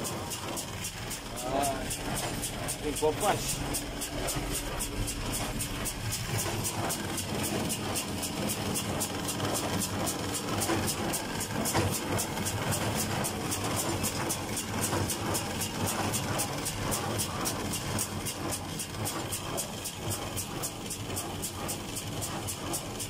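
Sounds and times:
tractor engine running under load: 0:00.0 - 0:23.0
fast regular ticking: 0:00.1 - 0:17.2.

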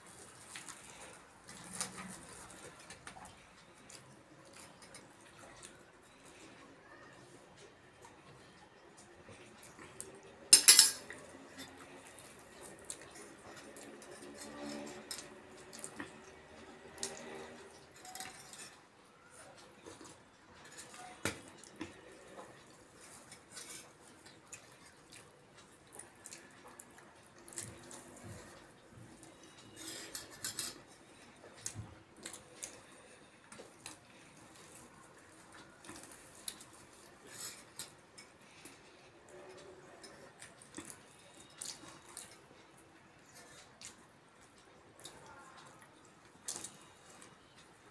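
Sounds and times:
spoons clinking on steel bowls: 0:10.5 - 0:11.7, 0:29.7 - 0:30.8.

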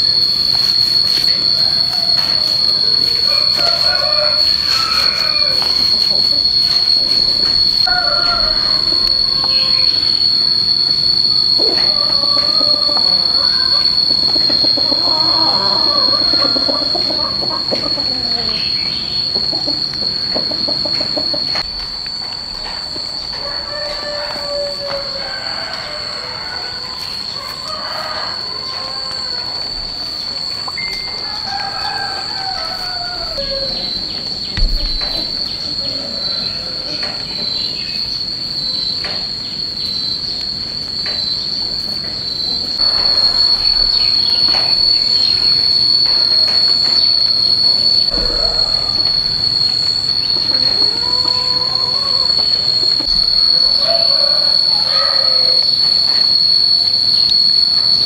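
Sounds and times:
insects high-pitched drone: 0:00.0 - 0:58.0
short chirping calls: 0:11.3 - 0:21.6
thump: 0:34.6 - 0:35.3, 0:48.1 - 0:50.5.

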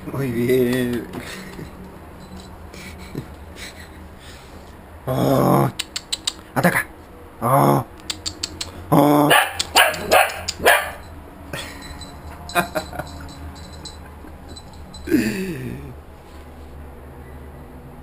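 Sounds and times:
small dog barking: 0:09.3 - 0:11.1.

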